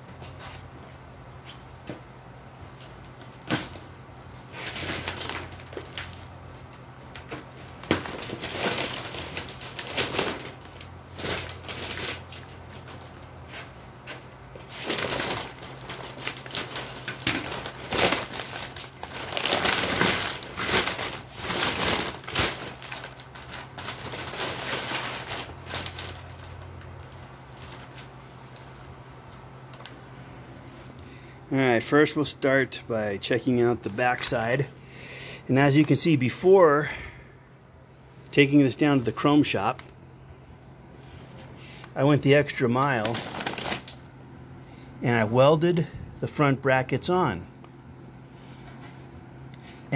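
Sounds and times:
paper and plastic wrapping crinkling: 2.7s - 30.1s, 38.3s - 40.0s, 40.6s - 44.2s.

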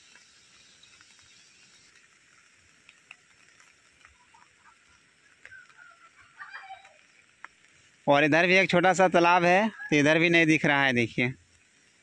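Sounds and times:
light rain hiss: 0.0s - 12.0s
faint bird calls: 4.0s - 7.2s.

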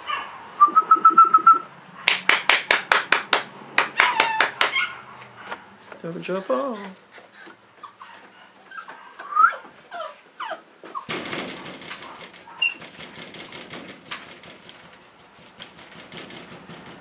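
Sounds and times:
puppies whimpering and yipping: 4.0s - 11.2s.

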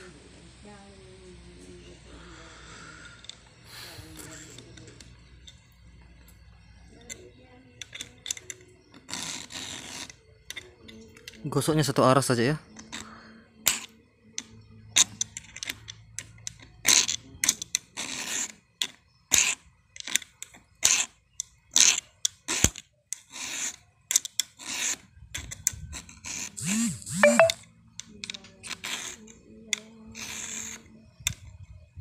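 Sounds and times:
file rasping on chainsaw chain: 9.1s - 10.2s, 16.9s - 18.6s, 21.8s - 25.1s, 26.0s - 27.0s, 30.1s - 30.9s.

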